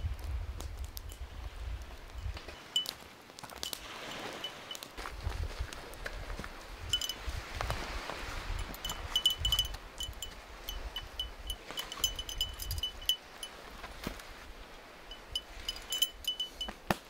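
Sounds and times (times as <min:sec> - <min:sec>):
small metal bell jingling: 0:03.6 - 0:04.8, 0:06.9 - 0:07.3, 0:08.6 - 0:13.5, 0:15.1 - 0:16.8.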